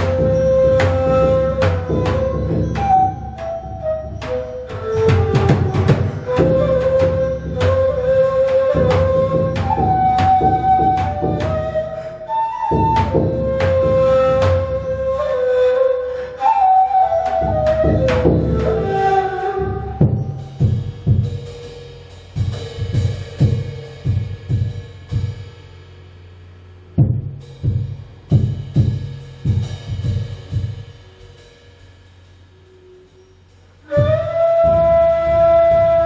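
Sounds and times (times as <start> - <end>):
bass drum struck with mallet: 0.0 - 8.0
hand percussion hits: 0.0 - 11.8, 12.7 - 14.9, 17.2 - 19.0
ney flute melody: 0.0 - 20.9, 32.5 - 36.0.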